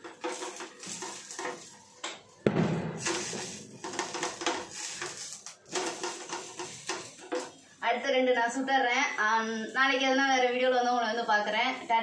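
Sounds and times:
wooden spatula scraping pan: 0.0 - 2.2, 3.0 - 7.7
heavy thump: 2.4 - 3.7.

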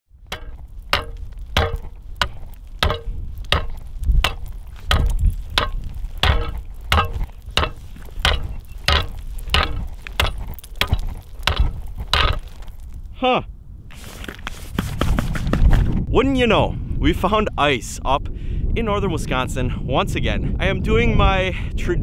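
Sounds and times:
ice bar chiselling ice: 0.3 - 12.9.

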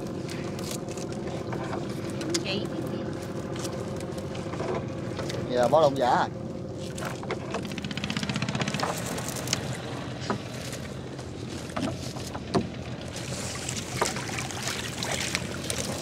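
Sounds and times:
small boat engine running: 0.0 - 16.0
knocks and splashes: 6.9 - 16.0.

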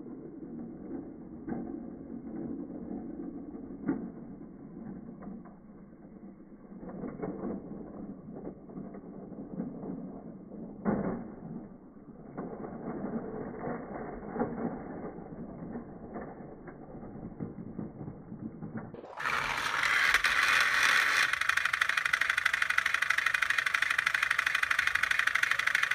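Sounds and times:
slowed deep clicks and rattles: 0.0 - 25.9
toy train rattling on track: 0.2 - 5.3, 6.7 - 10.0, 18.9 - 25.9
toy train motor whirring: 19.0 - 25.9.

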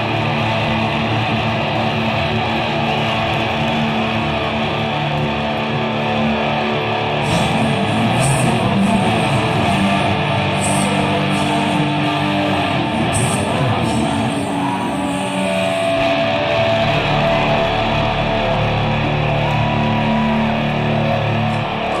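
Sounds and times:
long held guitar notes: 0.0 - 22.0
rock band playing loud: 0.0 - 22.0.

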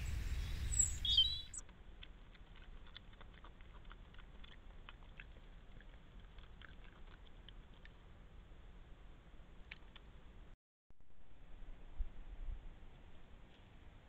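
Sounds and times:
bird chirp: 0.0 - 1.6.

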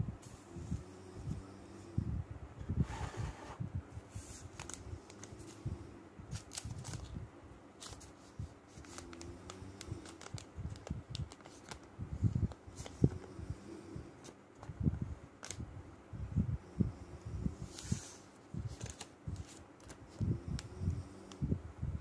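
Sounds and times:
plastic film crinkling: 6.3 - 7.2, 7.8 - 11.9, 18.7 - 20.0.

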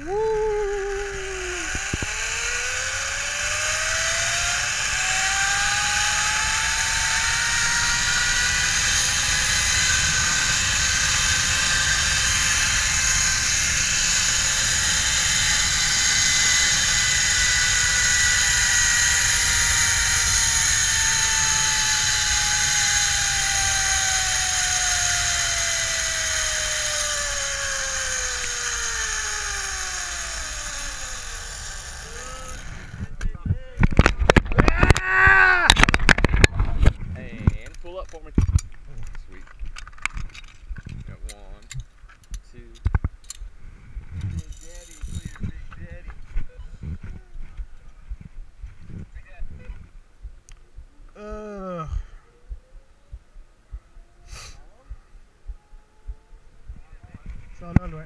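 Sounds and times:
pulley wheels whirring on cable: 0.0 - 33.2, 44.1 - 47.2
wind on microphone: 32.7 - 37.6, 42.9 - 51.0, 52.5 - 58.0.

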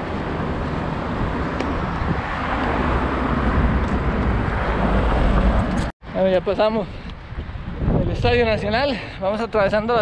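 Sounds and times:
road traffic passing: 0.0 - 8.0
wind rumbling on microphone: 0.0 - 10.0.

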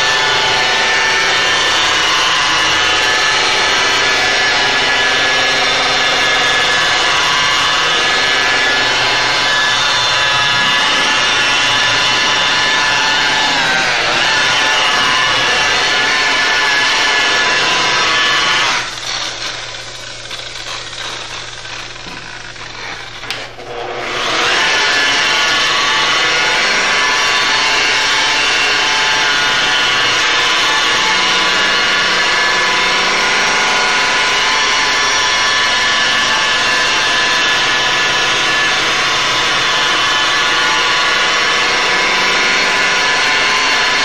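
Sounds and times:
rotary polisher motor whine: 0.0 - 44.0.

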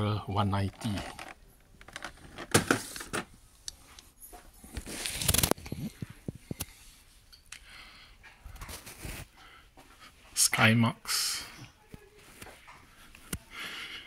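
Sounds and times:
cardboard and plastic rustling: 0.6 - 3.3, 4.7 - 6.4.

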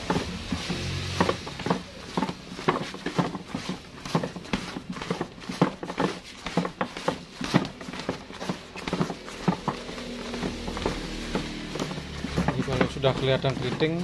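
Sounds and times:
dull thumps in flour basin: 0.0 - 14.0.

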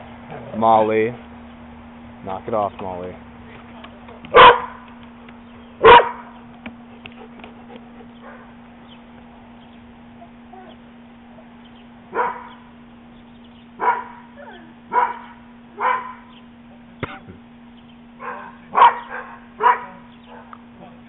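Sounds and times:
dog barking: 4.3 - 4.8, 5.8 - 6.4, 8.2 - 8.6, 12.1 - 12.6, 13.8 - 16.3, 18.2 - 20.6.

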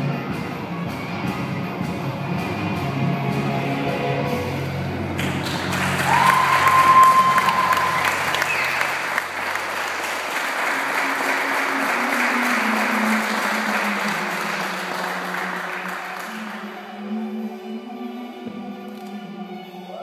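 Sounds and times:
background music: 0.0 - 20.0
audience applauding: 5.1 - 16.9
held whistle: 6.2 - 9.2.

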